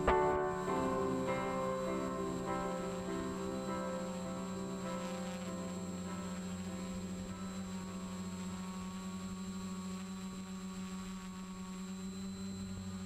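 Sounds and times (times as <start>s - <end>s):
low held musical chord: 0.0s - 10.5s.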